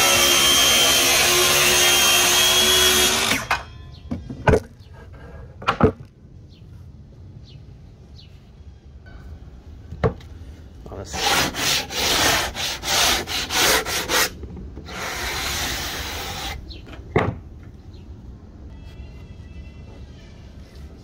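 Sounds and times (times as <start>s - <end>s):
sanding block rubbing wood: 11.1s - 14.3s.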